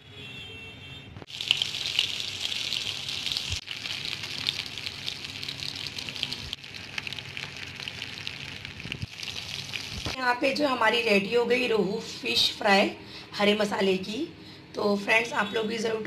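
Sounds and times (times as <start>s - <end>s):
fish sizzling in hot oil: 1.3s - 10.2s.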